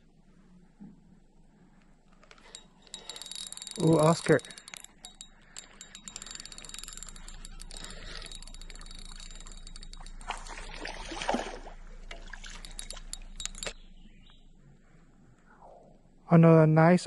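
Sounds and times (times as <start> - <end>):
metal lip-grip clicking and rattling: 2.1 - 10.7, 12.1 - 13.8
fish splashing at water surface: 10.3 - 13.1.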